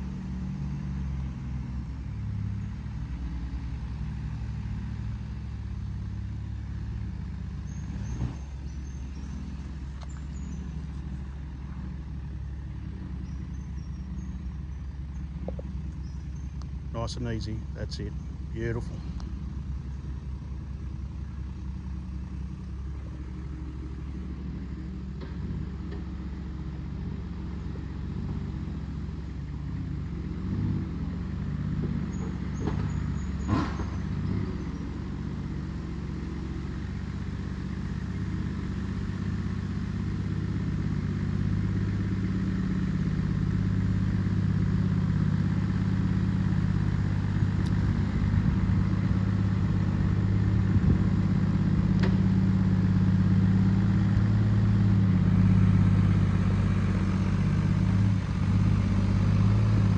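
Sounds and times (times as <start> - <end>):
off-road vehicle engine crawling: 0.0 - 59.9.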